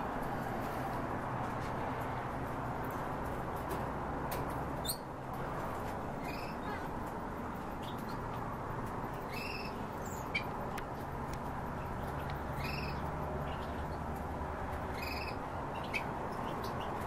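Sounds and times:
cage birds calling: 2.8s - 17.0s
sharp bird chirps: 9.2s - 10.5s, 12.4s - 13.8s.

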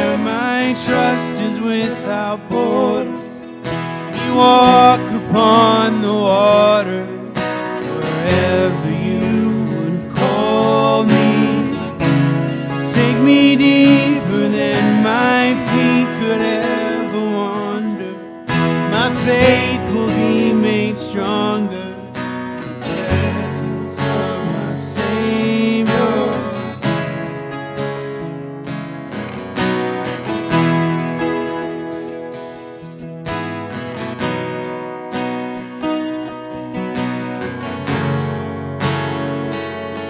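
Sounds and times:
men singing worship song: 0.0s - 3.3s, 4.2s - 7.4s, 8.0s - 12.0s, 12.8s - 18.2s, 18.8s - 22.1s, 22.8s - 26.8s
acoustic guitars strummed: 0.0s - 40.0s.

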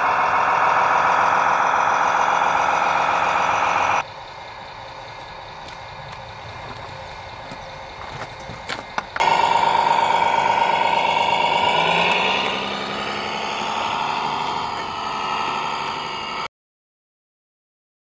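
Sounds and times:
toy truck motor whining: 0.0s - 4.0s, 5.6s - 16.5s.

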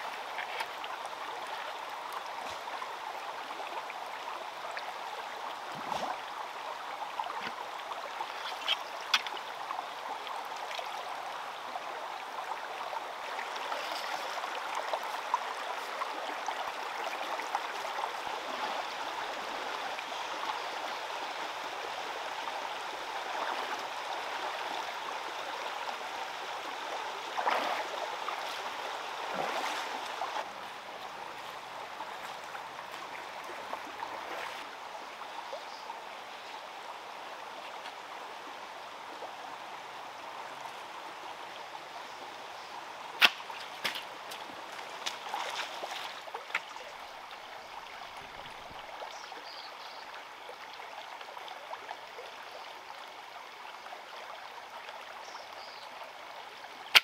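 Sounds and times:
stream running over stones: 0.0s - 57.0s
person wading through water: 29.3s - 34.7s, 43.5s - 46.9s.

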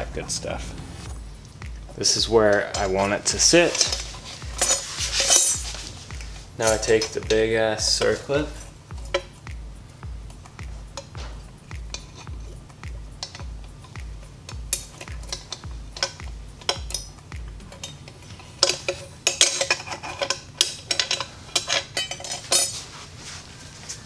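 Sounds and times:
soft music beat: 0.0s - 24.0s
metallic clicks and scrapes: 1.0s - 7.4s, 10.3s - 23.0s.

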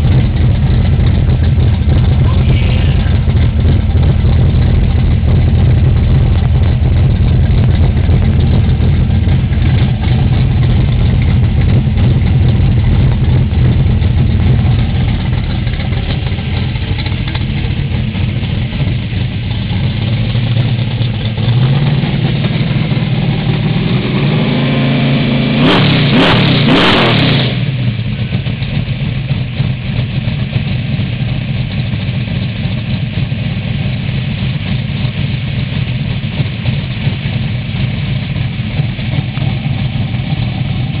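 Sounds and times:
vee eight engine idling and revving: 0.0s - 41.0s.

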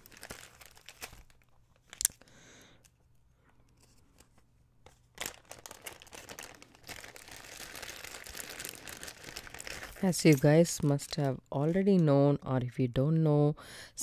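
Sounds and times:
plastic bag crinkling: 0.0s - 2.2s, 4.8s - 12.0s
plastic bag snapping open: 0.0s - 2.2s, 5.1s - 10.4s.

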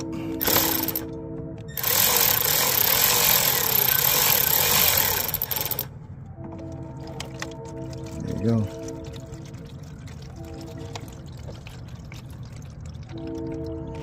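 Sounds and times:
electric ratchet rattling: 0.4s - 1.1s, 1.8s - 5.9s.

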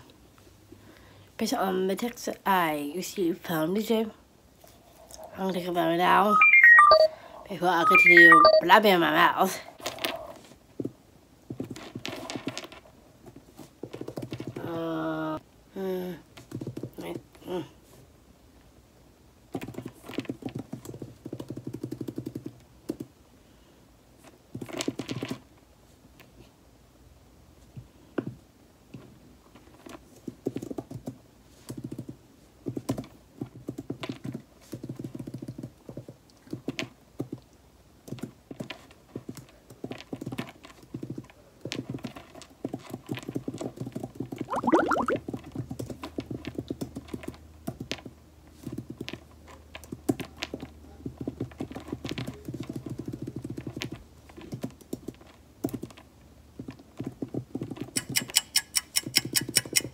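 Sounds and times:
typing on computer keyboard: 19.6s - 23.1s, 30.4s - 37.3s, 51.6s - 56.0s, 57.0s - 59.9s.

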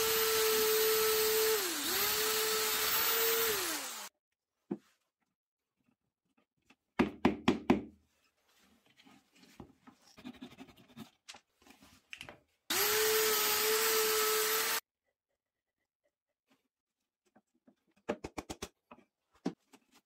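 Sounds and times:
cordless drill boring into wood: 0.0s - 4.1s, 12.7s - 14.8s.

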